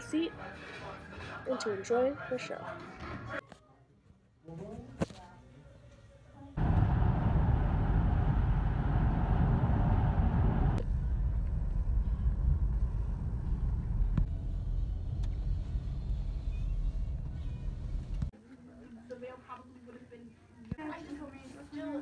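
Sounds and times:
car cabin road rumble: 6.6s - 18.3s.

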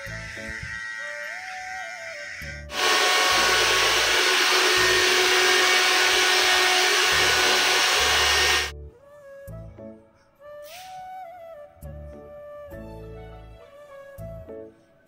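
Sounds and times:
faint motor whine: 2.7s - 8.7s
hair dryer blowing air: 2.7s - 8.7s.

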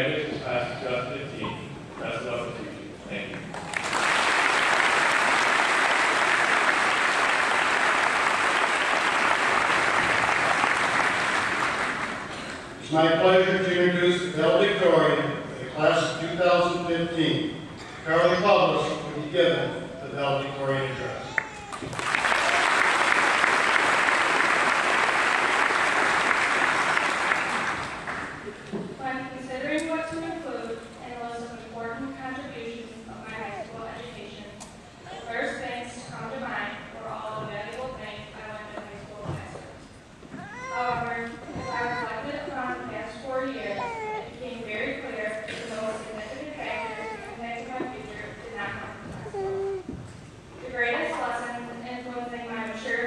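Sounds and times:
audience applauding: 3.5s - 12.4s, 21.3s - 28.5s.

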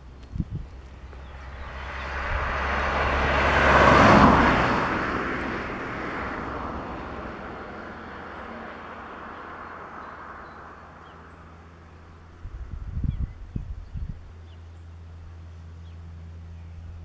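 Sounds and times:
vehicle passing by: 0.0s - 13.3s.

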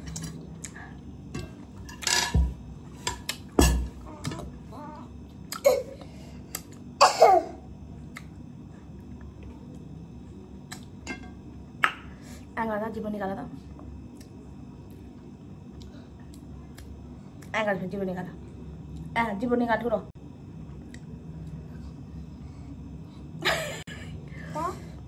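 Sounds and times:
lip smacks and mouth clicks: 8.1s - 8.3s.

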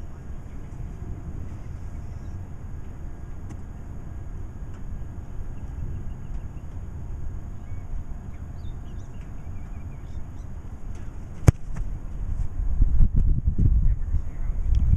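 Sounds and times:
wind rumble on microphone: 0.0s - 14.9s
faint bird chirps: 1.5s - 2.5s, 5.4s - 6.8s, 7.5s - 11.1s
foot kicking a football: 11.0s - 13.4s.

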